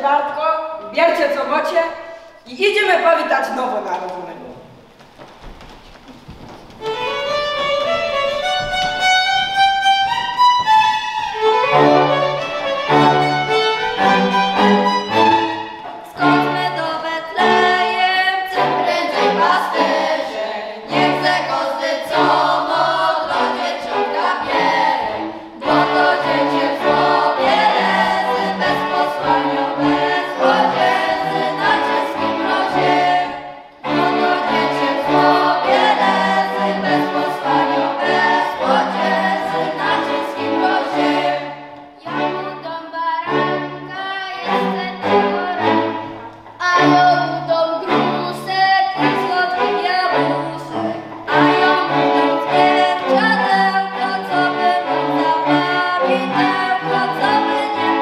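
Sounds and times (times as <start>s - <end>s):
fiddle playing: 6.8s - 58.0s
group of voices singing: 11.6s - 58.0s.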